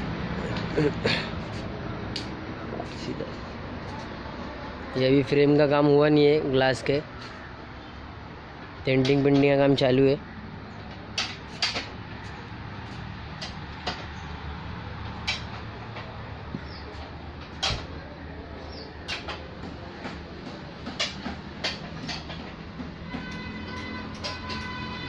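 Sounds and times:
sharp clicks and knocks: 10.8s - 14.2s, 15.0s - 18.0s, 19.0s - 25.0s.

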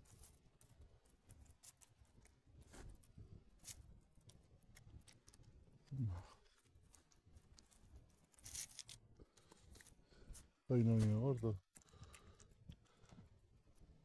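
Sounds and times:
cats chewing and licking food: 0.0s - 14.0s.

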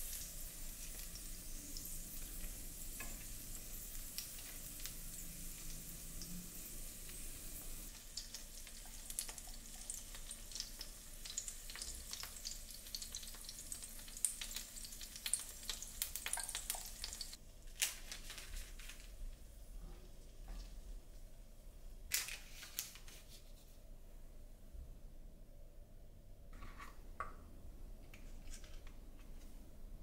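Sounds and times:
pancake sizzling in hot oil: 0.0s - 17.4s.

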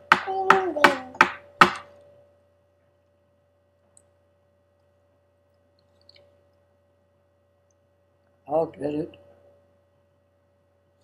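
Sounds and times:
sharp knock: 0.0s - 1.9s
faint steady hum: 0.0s - 11.0s.

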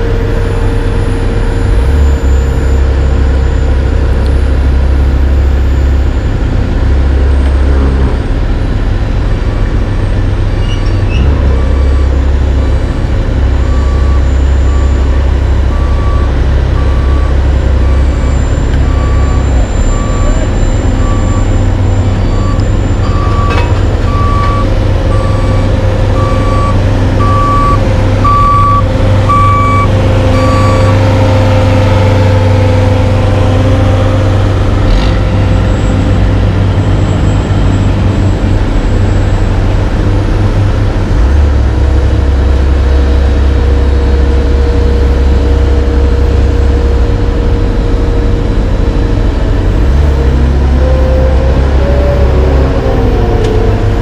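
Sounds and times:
heavy diesel engines running: 0.0s - 54.0s
backup alarm beeping: 13.7s - 31.0s.

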